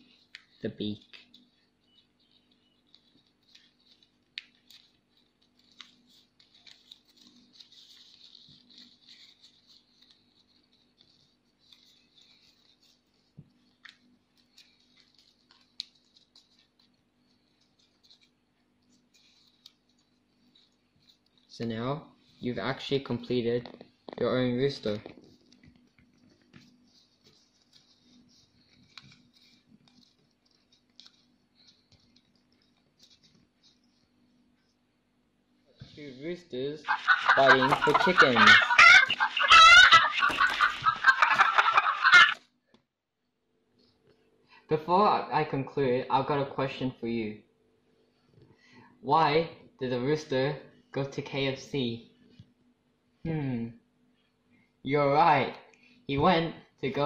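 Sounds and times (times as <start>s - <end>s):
paper rustling being folded: 0.0s - 34.9s, 35.8s - 42.4s
faint steady hum: 0.0s - 57.0s.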